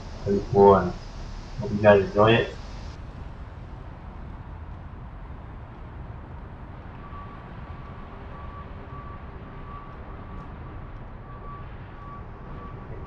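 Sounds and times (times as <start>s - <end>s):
vehicle reversing alarm beeps: 0.0s - 3.0s, 6.8s - 13.0s
street rumble: 0.0s - 13.0s.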